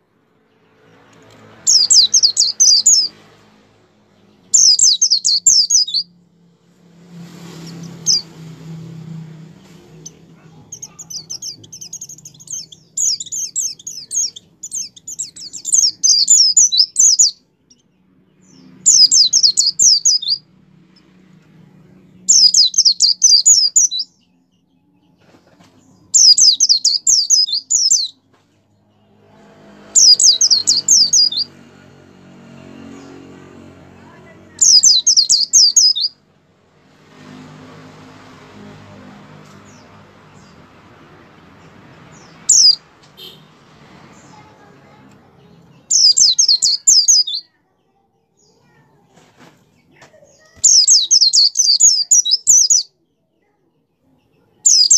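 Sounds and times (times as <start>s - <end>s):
bird singing chattering phrases: 1.2s - 3.2s, 4.4s - 6.1s, 9.8s - 20.4s, 21.8s - 28.3s, 30.0s - 31.6s, 34.1s - 36.2s, 41.6s - 47.7s, 49.8s - 52.9s, 54.2s - 54.9s.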